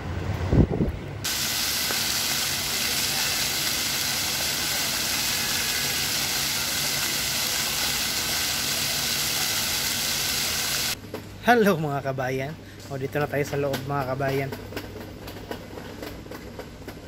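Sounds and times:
fountain jets splashing on pavement: 1.3 - 11.0.

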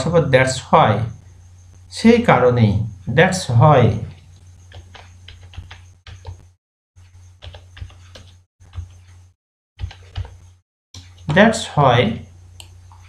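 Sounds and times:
low electrical hum: 0.0 - 5.9, 10.4 - 13.0
keyboard typing: 4.6 - 6.5, 7.4 - 9.1, 9.8 - 11.4.

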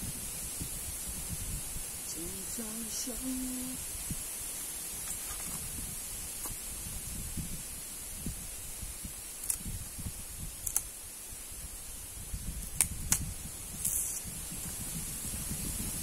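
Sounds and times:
steady high hiss: 0.0 - 16.0
bamboo shoot cracking and snapping: 9.4 - 9.7, 10.6 - 10.9, 12.6 - 14.2.

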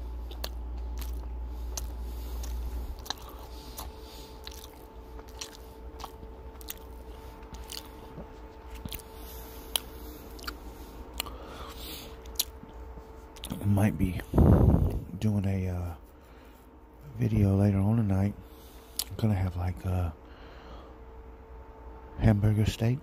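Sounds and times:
person chewing with mouth smacks: 0.0 - 13.6, 18.8 - 19.2
faint steady hum: 0.0 - 23.0
low rumble: 13.6 - 15.5.

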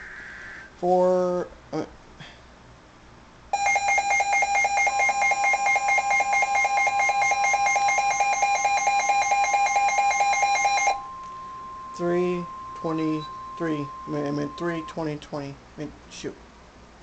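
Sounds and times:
rapid pulsed beeping: 3.6 - 15.4
steady warning tone: 3.6 - 16.0.

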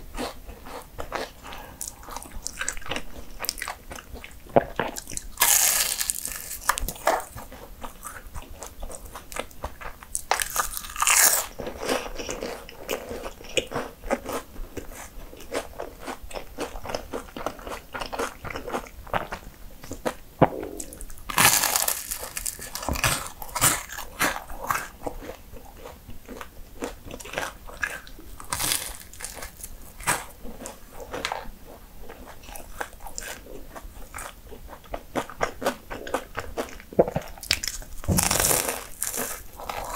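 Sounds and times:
chewing: 0.1 - 39.9
pastry crunching: 0.2 - 8.2, 8.9 - 12.5, 20.0 - 31.4, 35.1 - 39.9.

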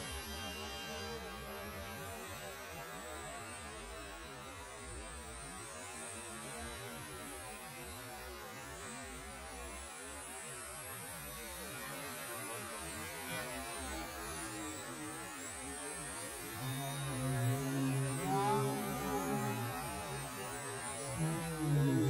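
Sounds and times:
rc car motors whining: 16.4 - 22.0.

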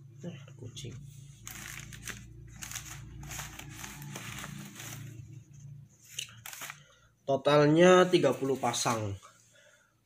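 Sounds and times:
plastic bags crinkling: 1.4 - 5.2, 6.1 - 6.9.

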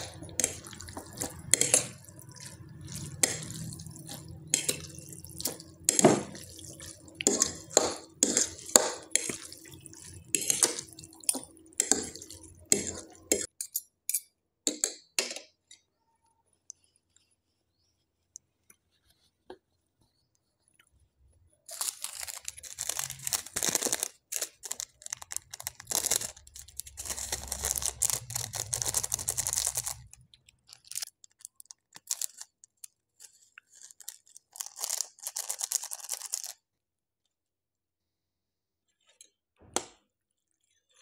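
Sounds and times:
plastic sachet crinkling: 0.0 - 13.3, 21.6 - 36.6
flakes shaken out: 21.7 - 31.1.

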